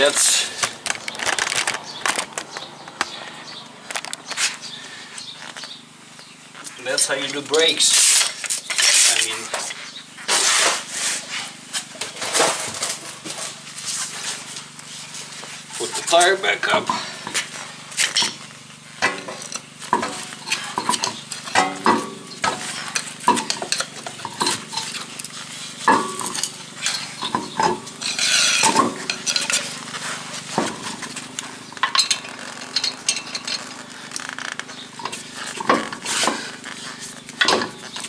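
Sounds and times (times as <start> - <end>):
metallic clinks of lug nuts: 16.7 - 38.0.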